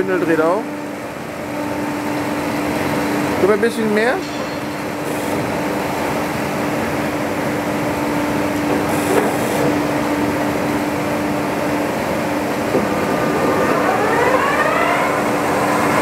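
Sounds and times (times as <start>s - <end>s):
boring mill humming: 0.0s - 16.0s
rising drive whine: 9.8s - 16.0s.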